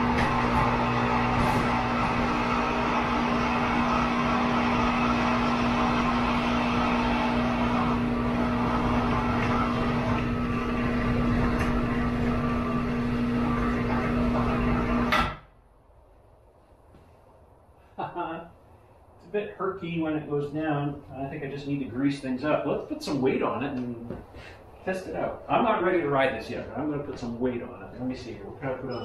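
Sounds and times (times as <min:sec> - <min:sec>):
electric hoist motor hum: 0:00.0 - 0:15.3.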